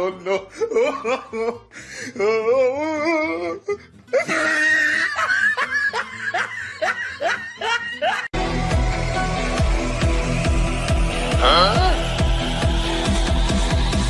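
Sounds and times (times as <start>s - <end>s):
person laughing: 0.0s - 8.4s
electronic music with steady beat: 8.4s - 14.0s.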